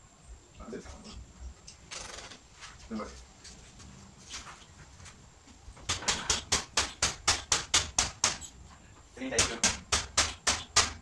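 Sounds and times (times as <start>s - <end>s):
hammer tapping: 5.9s - 8.5s, 9.4s - 11.0s.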